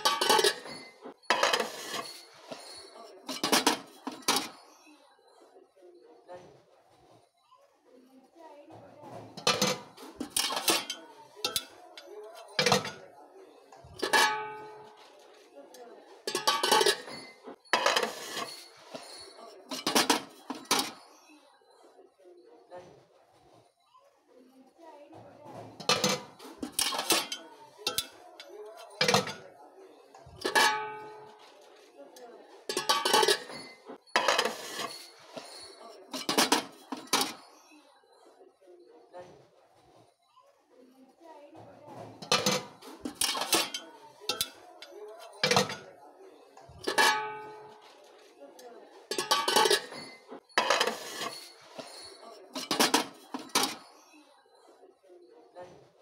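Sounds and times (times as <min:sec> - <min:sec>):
metal cookware clanking: 0:00.0 - 0:04.6, 0:09.1 - 0:13.1, 0:13.8 - 0:21.0, 0:25.5 - 0:29.6, 0:30.2 - 0:37.5, 0:42.0 - 0:46.0, 0:46.7 - 0:48.3, 0:49.0 - 0:54.0.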